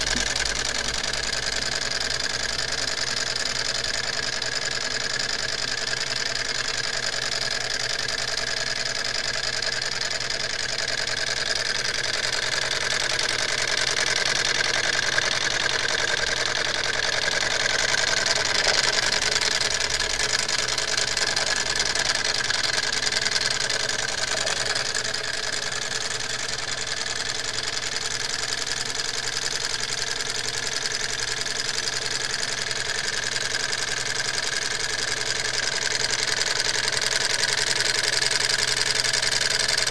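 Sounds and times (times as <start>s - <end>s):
stirling engine running: 0.0s - 5.6s, 6.2s - 30.2s.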